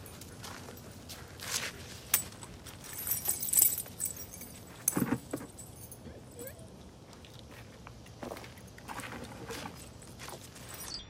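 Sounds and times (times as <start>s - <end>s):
dog collar metal jingling: 2.0s - 6.8s, 8.6s - 11.0s.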